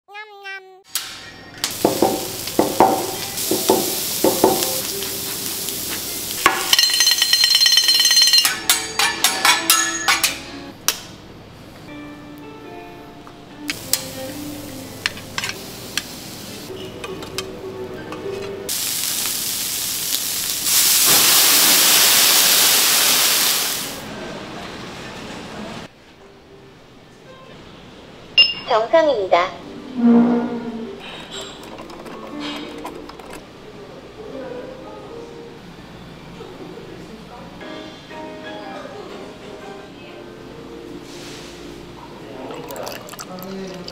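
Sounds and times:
steak sizzling on a griddle: 1.7 - 7.1, 13.7 - 16.7, 18.7 - 24.0
metallic clatter with ringing tones: 6.5 - 10.4.

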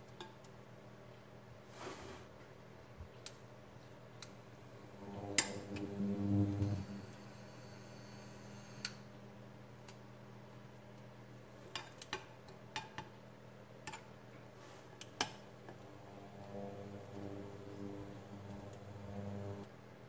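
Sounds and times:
faint low hum: 2.7 - 11.4, 15.6 - 19.7.

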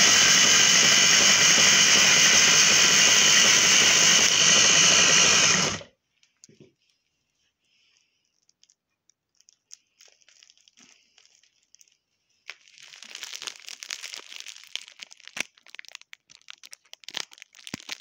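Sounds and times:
plastic wrapping crinkling: 7.8 - 18.0.

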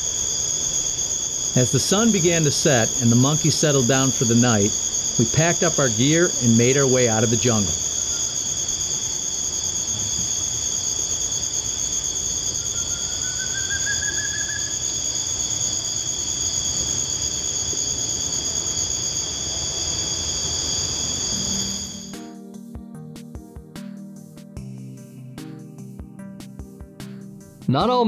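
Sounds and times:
low background hiss: 0.0 - 22.1
rising whistle: 0.0 - 22.2
insect trills: 0.0 - 22.3
music: 1.5 - 7.8, 21.3 - 28.0.

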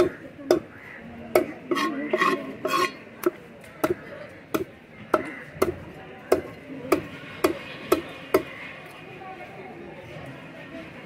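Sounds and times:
cleaver chopping on wooden block: 0.0 - 0.7, 1.4 - 8.5.

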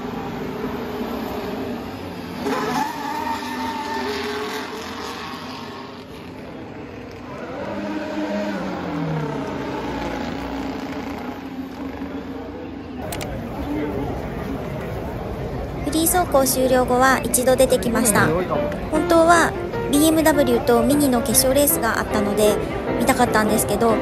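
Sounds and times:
racing cars passing at speed: 0.0 - 15.8.

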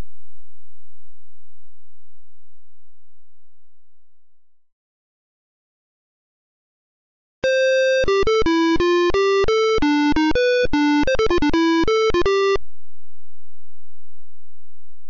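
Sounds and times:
synthesizer melody: 7.5 - 12.6.

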